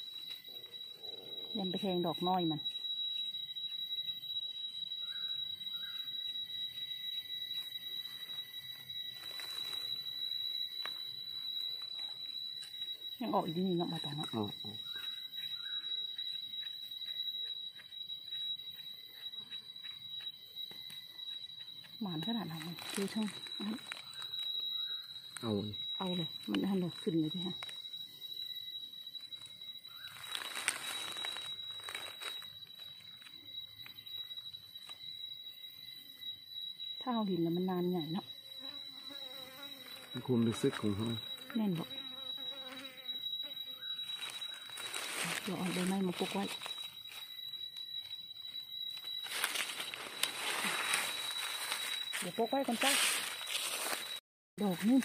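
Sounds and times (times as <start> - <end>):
rustling in leaf litter: 9.2 - 10.0, 30.1 - 32.5, 44.1 - 47.2, 49.2 - 55.0.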